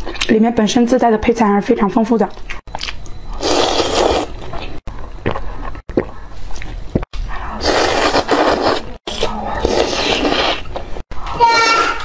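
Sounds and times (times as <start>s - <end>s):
slurping noodles: 3.4s - 4.4s, 7.6s - 10.7s.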